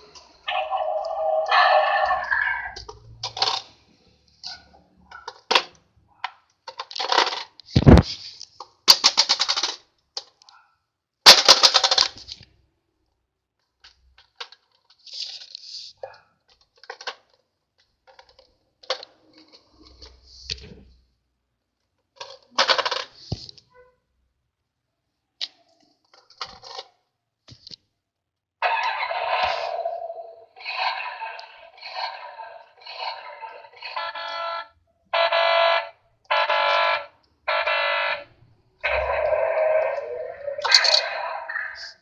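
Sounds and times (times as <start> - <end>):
toy truck rattling: 0.6 - 5.8, 6.6 - 7.7, 8.6 - 10.4, 11.3 - 12.4, 13.8 - 15.7, 16.5 - 20.2, 22.0 - 23.2, 28.6 - 38.1.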